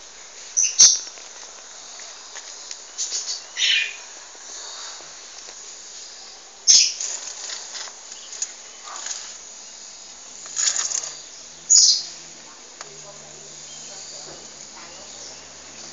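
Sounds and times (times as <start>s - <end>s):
insects hissing: 0.0s - 15.9s
bird chirps: 0.5s - 1.1s, 2.9s - 4.1s, 6.1s - 7.5s, 8.1s - 12.2s.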